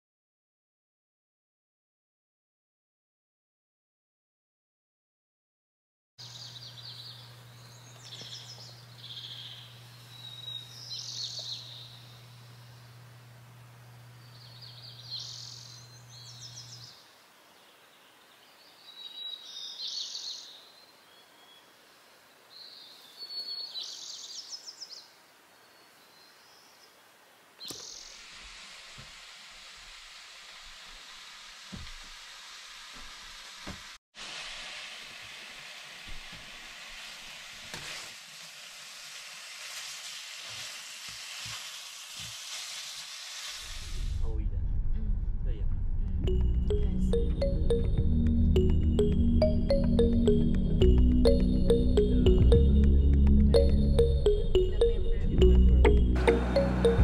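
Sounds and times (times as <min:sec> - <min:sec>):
songbirds singing: 0:06.2 - 0:13.0, 0:13.9 - 0:27.0
meat sizzling in a pan: 0:28.1 - 0:44.0.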